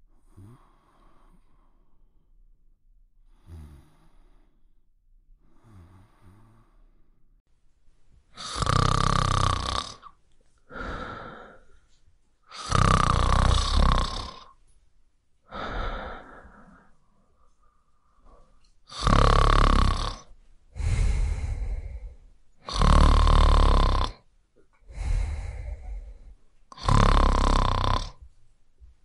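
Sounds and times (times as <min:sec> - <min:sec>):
breathing: 0:00.1 - 0:02.2, 0:03.2 - 0:04.8, 0:05.4 - 0:07.2, 0:09.9 - 0:12.9, 0:15.5 - 0:24.1, 0:24.8 - 0:28.3
man snoring: 0:00.2 - 0:01.4, 0:03.3 - 0:04.5, 0:05.5 - 0:06.8, 0:08.4 - 0:11.6, 0:12.5 - 0:14.6, 0:15.5 - 0:16.9, 0:18.9 - 0:24.2, 0:24.9 - 0:28.2.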